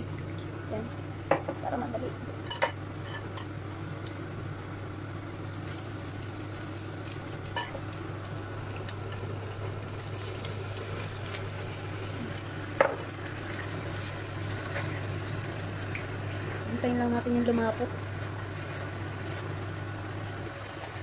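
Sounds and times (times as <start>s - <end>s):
steady low hum: 0.0s - 21.0s
sauce sizzling in hot pan: 2.3s - 16.7s.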